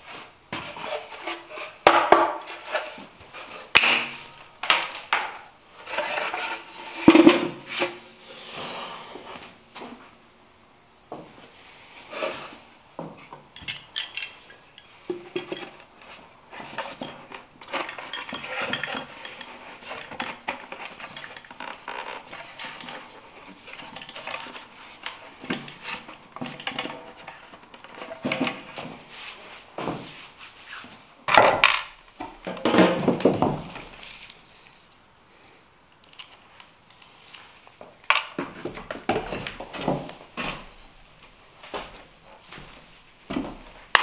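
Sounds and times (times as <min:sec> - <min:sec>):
light clinks: 0:13.6 - 0:15.6
wooden box knocking and clattering: 0:31.3 - 0:33.9.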